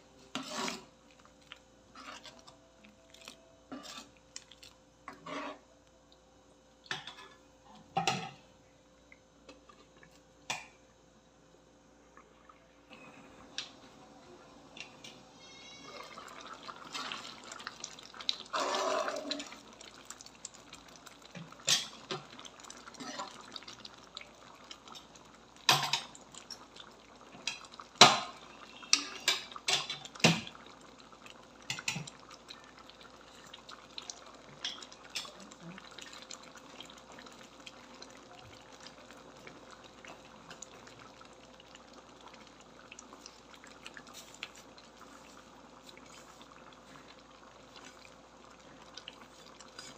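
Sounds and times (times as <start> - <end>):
soup bubbling: 0.1 - 6.2, 12.2 - 49.9.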